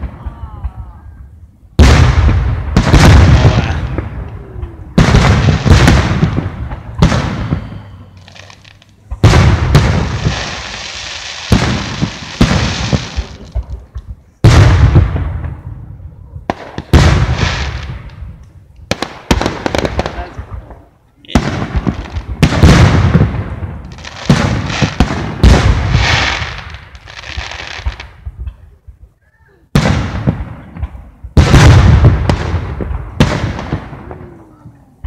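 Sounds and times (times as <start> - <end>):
firework crackling: 1.8 - 15.8, 16.4 - 28.4
firework shells booming: 1.8 - 29.0, 29.7 - 34.8.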